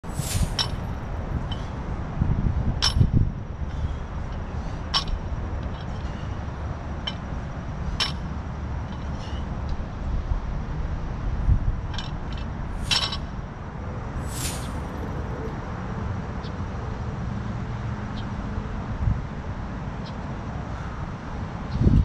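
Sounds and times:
steady low rumble: 0.0s - 16.3s
barbell plates clinking: 0.2s - 1.7s, 2.8s - 3.2s, 11.9s - 13.3s.

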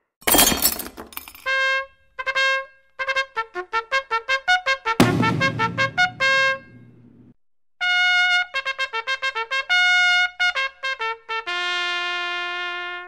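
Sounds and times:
trumpet playing: 1.4s - 7.2s.

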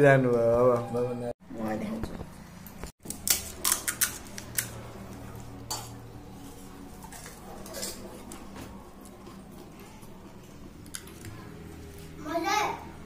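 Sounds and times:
metal dishes clinking: 5.6s - 6.1s, 7.0s - 8.6s.

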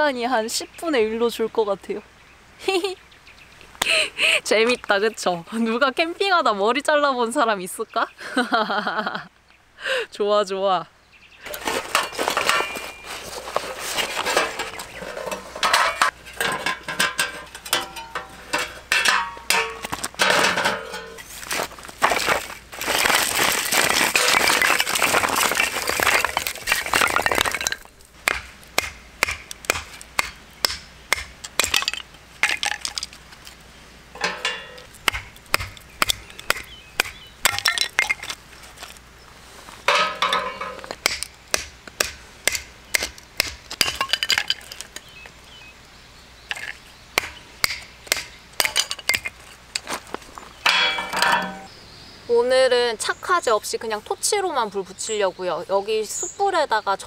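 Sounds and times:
logs clattering and rustling: 11.4s - 30.4s, 31.1s - 41.3s, 43.4s - 45.4s, 46.5s - 46.8s, 47.6s - 51.7s
knife splitting firewood: 11.4s - 33.2s, 34.2s - 39.0s, 40.0s - 45.0s, 46.5s - 49.4s
split sticks clattering: 11.4s - 33.6s, 34.2s - 39.0s, 39.8s - 45.1s, 46.5s - 50.0s, 50.6s - 51.7s.

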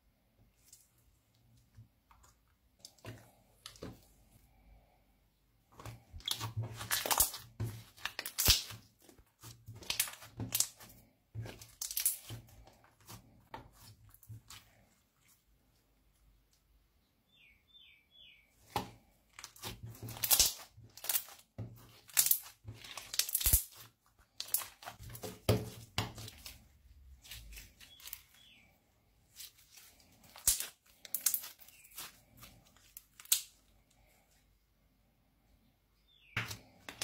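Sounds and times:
slime crackling and popping: 5.9s - 13.2s, 19.4s - 26.6s, 29.4s - 33.6s.

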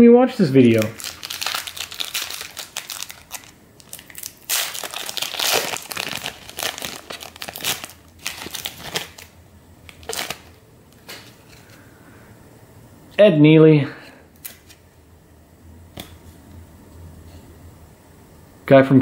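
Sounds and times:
foil wrapper crinkling: 0.6s - 11.8s.

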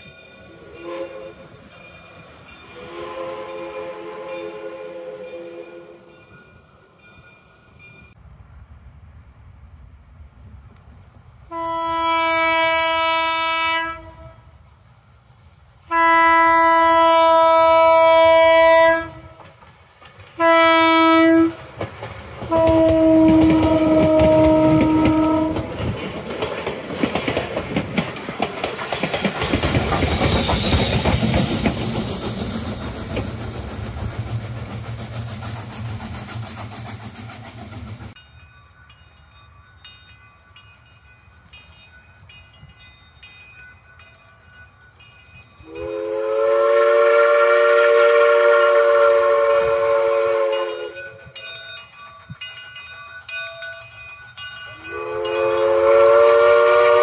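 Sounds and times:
steam whistle blasts: 0.6s - 1.6s, 2.7s - 6.2s, 11.5s - 14.5s, 15.9s - 19.3s, 20.4s - 21.6s, 22.5s - 25.6s, 45.6s - 51.4s, 54.9s - 57.0s
train wheels clacking over rail joints: 19.2s - 38.2s.

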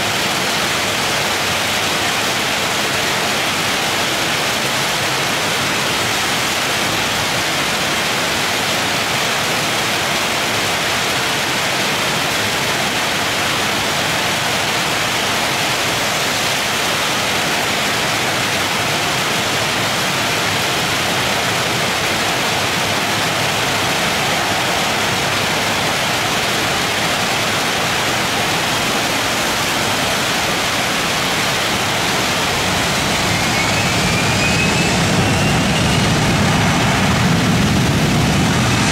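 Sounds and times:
heavy rain falling: 0.0s - 38.9s
jet engines spooling up: 20.1s - 38.9s.

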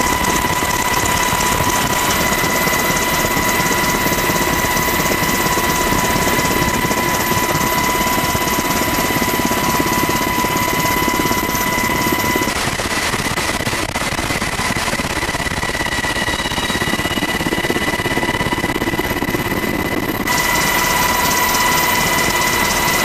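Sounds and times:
helicopter rotor chop: 0.0s - 23.0s
high-pitched turbine whine: 0.0s - 23.0s.

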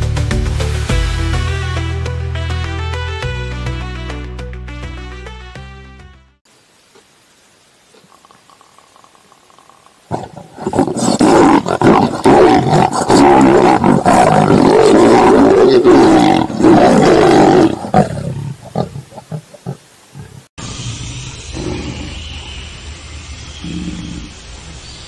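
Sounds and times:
lions snarling and growling: 8.0s - 22.6s, 23.6s - 24.4s.

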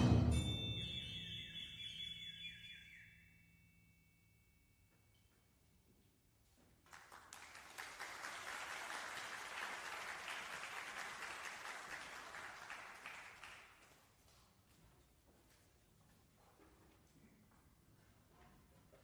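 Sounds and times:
audience applauding: 6.8s - 14.0s.

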